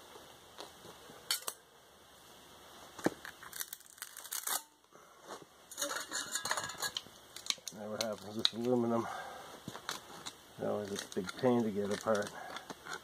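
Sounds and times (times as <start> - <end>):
pliers scraping metal: 5.7 - 7.0.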